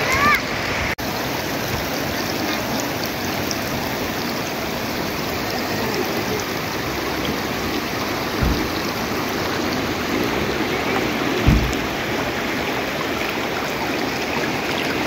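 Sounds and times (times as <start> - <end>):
river flowing over rocks: 0.0 - 15.0.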